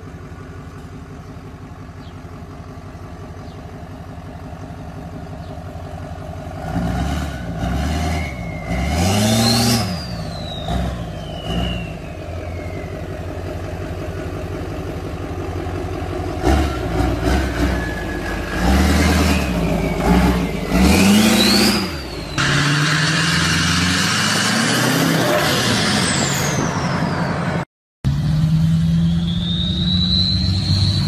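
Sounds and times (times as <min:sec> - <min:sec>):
diesel pickup trucks revving: 0:02.9 - 0:31.0
turbo whistle: 0:08.1 - 0:13.2, 0:28.9 - 0:31.0
truck running with steady hiss: 0:09.8 - 0:31.0.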